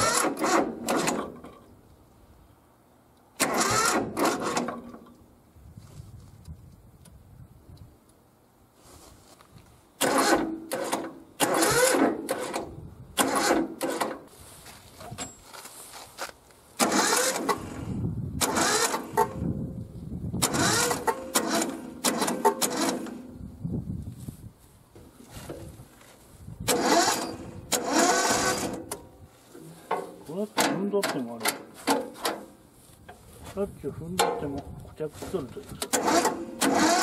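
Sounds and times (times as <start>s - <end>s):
diesel engine cranking: 0.0s - 1.7s, 3.3s - 5.2s, 10.0s - 14.3s, 16.8s - 19.6s, 20.4s - 23.5s, 26.6s - 32.6s, 35.6s - 37.0s.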